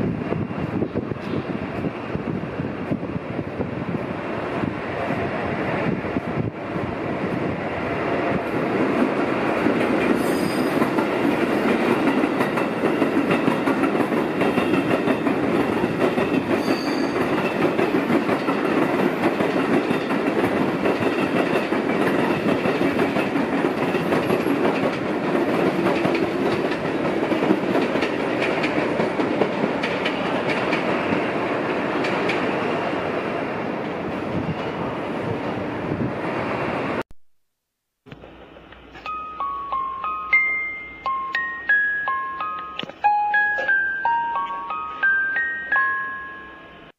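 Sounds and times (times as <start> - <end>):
high wheel squeals: 10.2 - 10.8, 16.6 - 17.2.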